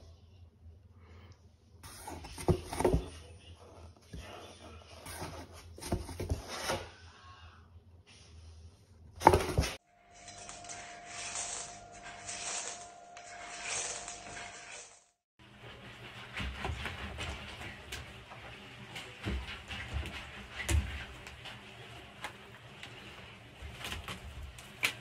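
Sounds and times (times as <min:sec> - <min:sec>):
ball rolling in cardboard box: 0:01.8 - 0:03.2, 0:05.0 - 0:06.8
scraping on cardboard: 0:01.8 - 0:03.2, 0:04.1 - 0:06.9.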